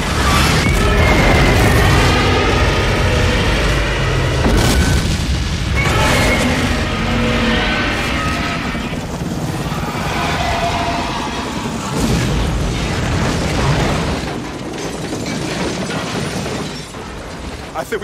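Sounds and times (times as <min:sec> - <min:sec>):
deep rumbling booms: 0:00.0 - 0:08.6.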